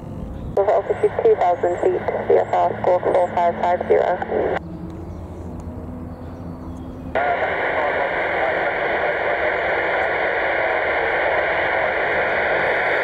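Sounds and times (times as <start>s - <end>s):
radio static hiss: 0.5s - 4.6s, 7.1s - 13.0s.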